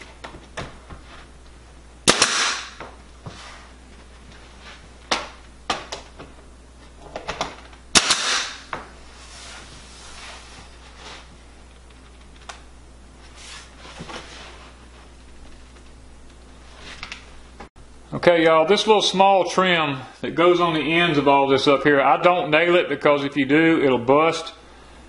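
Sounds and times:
nail gun firing: 2.0 - 2.8, 7.9 - 8.7.

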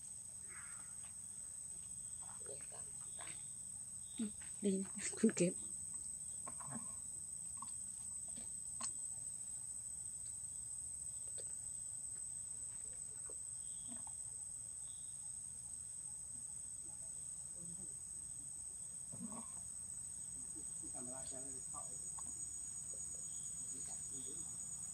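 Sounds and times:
high-pitched insect drone: 16.0 - 24.9.

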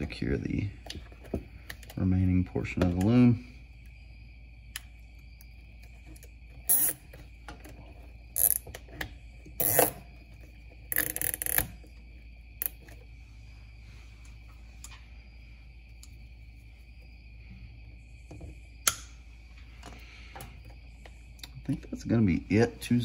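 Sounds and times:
faint high whine: 0.0 - 23.0.

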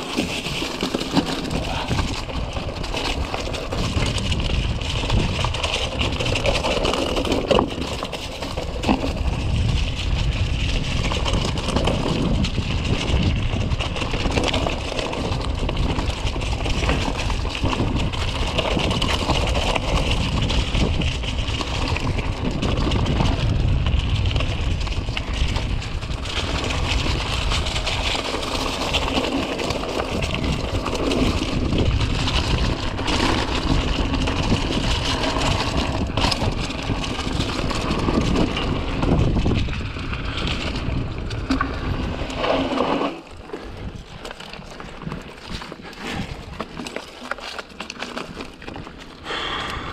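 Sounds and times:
bike tyres rumbling on dirt: 0.0 - 49.9
wind on microphone: 8.9 - 14.6, 15.2 - 29.2, 29.8 - 43.0.

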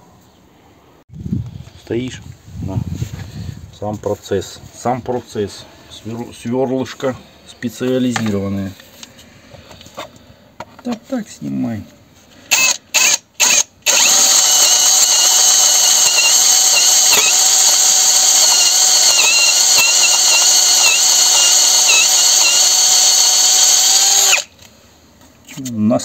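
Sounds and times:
drill boring into metal: 12.5 - 24.5.

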